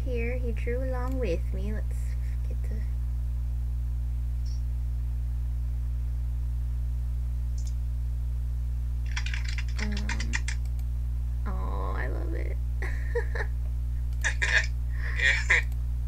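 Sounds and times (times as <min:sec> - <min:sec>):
low electrical hum: 0:00.0 - 0:16.0
computer keyboard clicks: 0:09.1 - 0:10.9.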